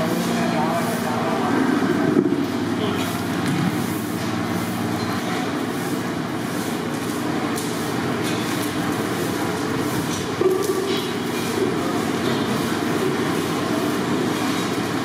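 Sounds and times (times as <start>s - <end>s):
low machinery rumble: 0.0s - 5.4s.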